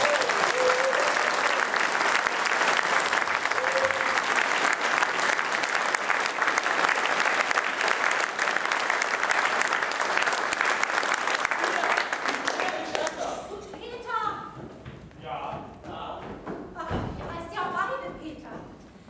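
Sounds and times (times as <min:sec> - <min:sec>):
audience applauding: 0:00.0 - 0:13.5.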